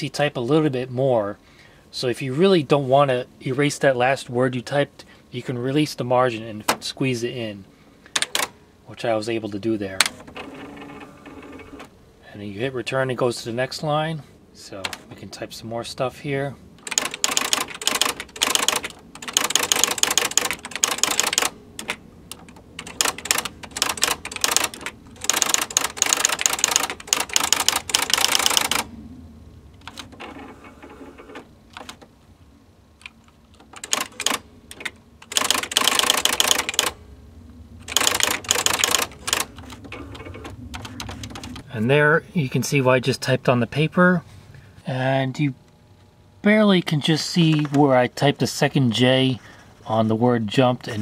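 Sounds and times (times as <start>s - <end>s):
electronic typewriter printing: 8.2s - 8.5s, 10.0s - 11.9s, 16.8s - 28.9s, 29.8s - 32.1s, 33.0s - 37.0s, 37.8s - 41.6s.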